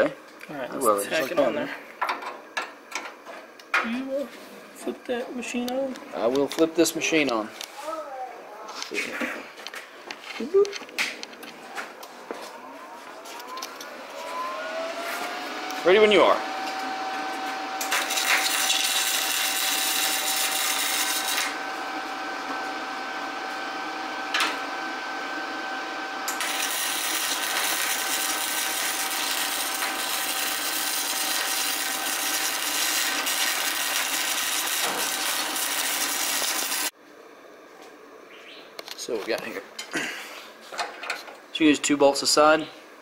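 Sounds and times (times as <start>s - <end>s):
welder arc crackling: 17.5s - 21.7s, 26.2s - 37.0s.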